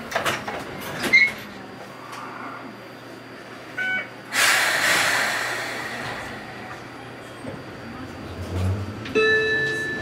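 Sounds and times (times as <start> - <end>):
compressed air hiss: 4.3 - 6.6.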